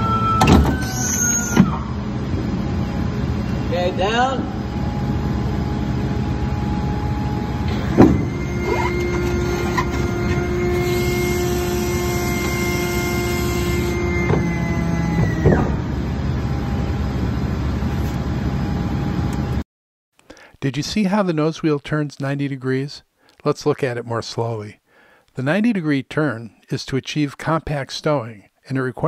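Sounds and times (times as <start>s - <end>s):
hydraulic pump whine: 0.0s - 19.6s
steady loud noise: 1.5s - 19.6s.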